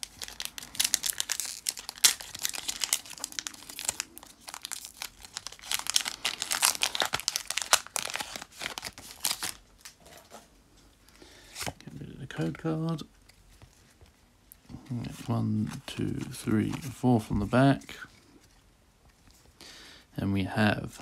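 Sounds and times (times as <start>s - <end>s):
foil wrapper crinkling and tearing: 0.0s - 10.0s.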